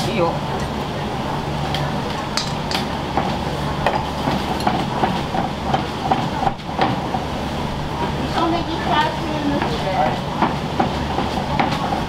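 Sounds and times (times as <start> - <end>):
steady low hum: 0.0 - 12.0
utensils and dishes clinking: 2.1 - 2.9.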